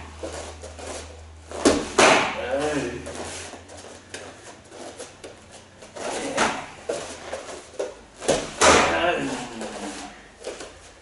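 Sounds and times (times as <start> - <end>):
kicks smacking padded mitts: 1.5 - 2.6, 8.2 - 9.6.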